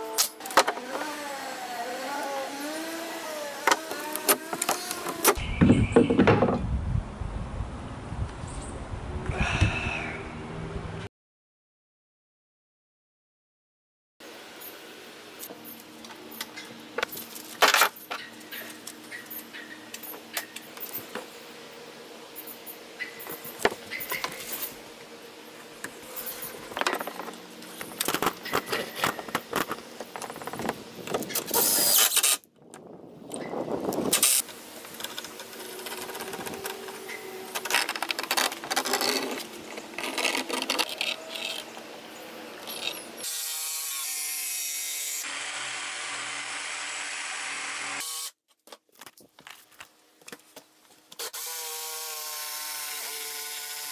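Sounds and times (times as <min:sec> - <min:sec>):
cordless drill driving screws: 0:31.4 - 0:32.4.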